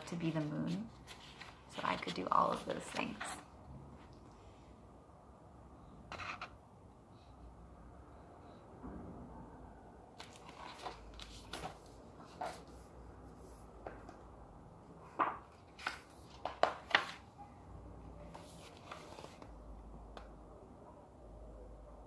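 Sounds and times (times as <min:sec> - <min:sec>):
book taps clicks and rustles: 0:15.1 - 0:17.2.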